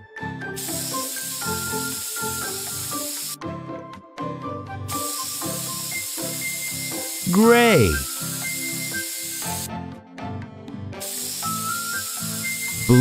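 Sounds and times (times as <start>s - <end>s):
light background music: 0.0s - 13.0s
cartoon spray-paint hiss: 0.6s - 3.4s, 4.9s - 9.7s, 11.0s - 13.0s.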